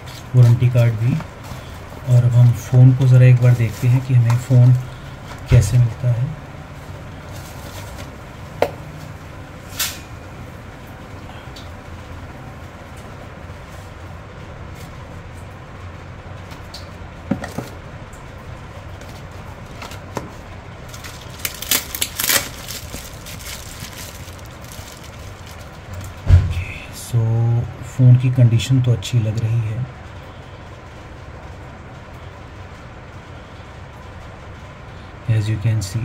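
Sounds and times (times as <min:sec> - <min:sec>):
steady low hum: 0:00.0 - 0:36.0
cardboard box clicks and rustles: 0:20.9 - 0:26.1.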